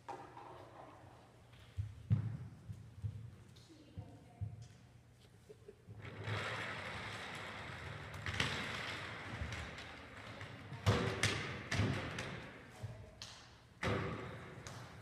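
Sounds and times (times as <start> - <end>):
scooter board rolling on wooden floor: 0.0 - 1.4, 5.9 - 12.7.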